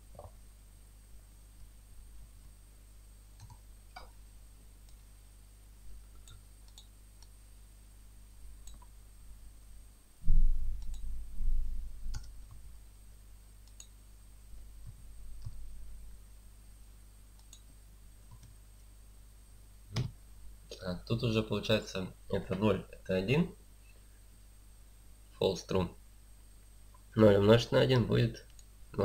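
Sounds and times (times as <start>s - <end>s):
keyboard and mouse clicks: 3.4s - 4.2s, 6.1s - 7.3s, 8.6s - 8.9s, 10.8s - 11.1s, 12.1s - 12.6s, 13.6s - 13.9s, 17.4s - 17.7s, 18.3s - 18.6s.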